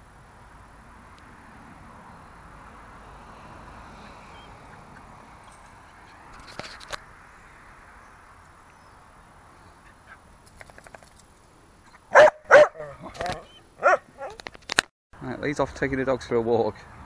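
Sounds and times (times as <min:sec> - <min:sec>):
faint outdoor background noise: 0:00.0 - 0:17.0
dog barking: 0:12.1 - 0:14.4.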